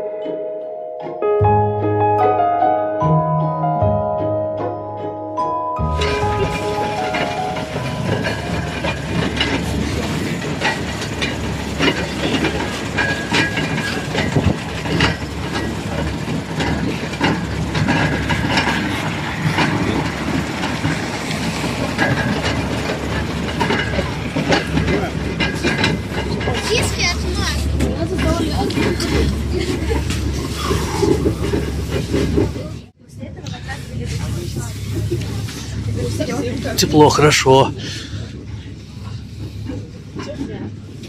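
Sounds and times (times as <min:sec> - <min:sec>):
bus body rattling and clicking: 0:05.8 - 0:41.0
bus engine and road rumble: 0:05.8 - 0:41.0.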